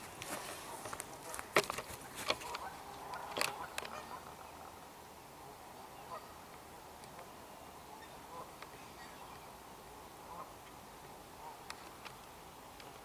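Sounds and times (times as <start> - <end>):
geese honking: 0.0 - 4.5, 6.0 - 6.4.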